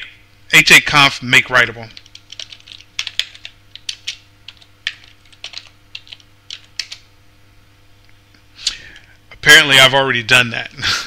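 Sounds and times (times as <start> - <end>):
faint hum: 0.0 - 11.0.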